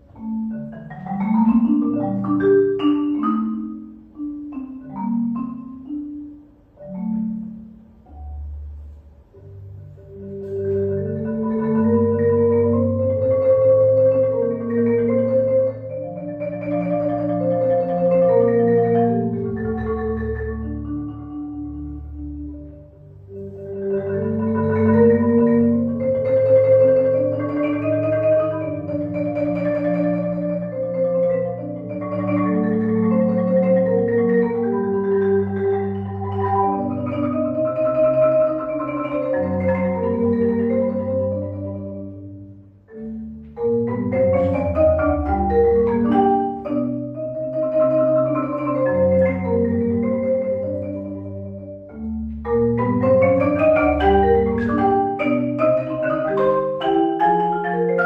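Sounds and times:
marimba played with mallets: 0.0s - 58.0s.

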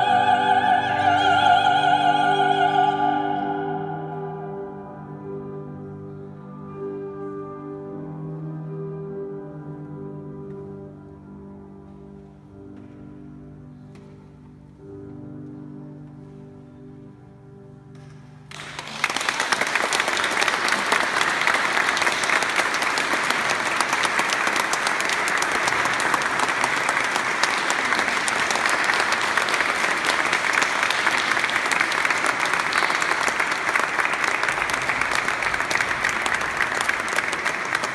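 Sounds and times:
audience applauding: 18.5s - 37.9s.

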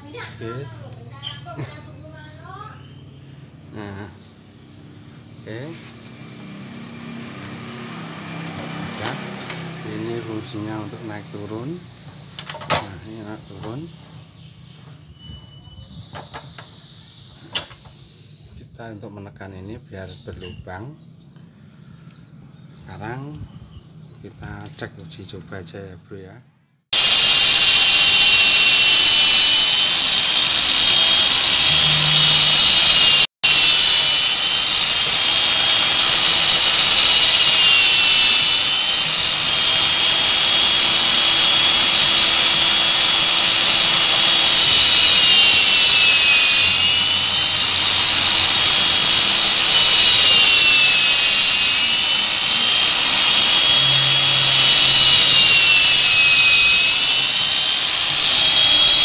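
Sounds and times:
electric drill whining under load: 26.9s - 59.0s.

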